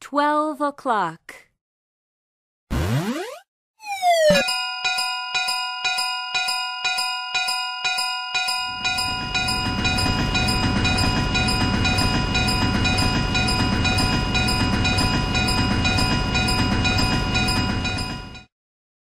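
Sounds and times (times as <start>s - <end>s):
level crossing bell dinging: 4.0s - 18.4s.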